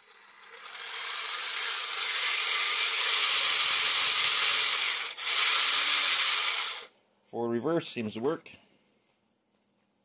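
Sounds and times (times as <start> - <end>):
electric motors whirring and rattling: 0.0 - 6.9.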